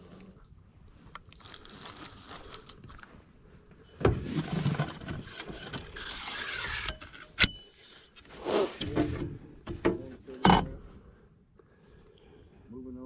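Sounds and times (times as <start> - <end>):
scraping and rustling: 4.1 - 9.4.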